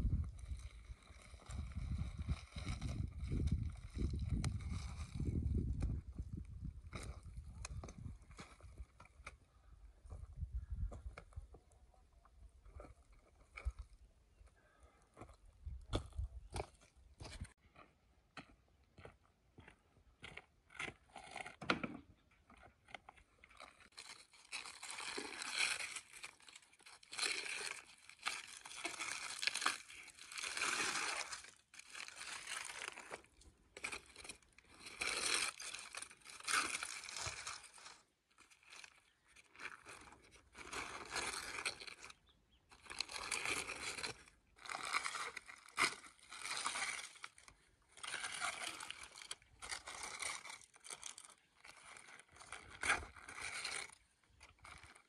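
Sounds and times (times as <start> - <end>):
aluminium foil crinkling: 23.5 - 55.0.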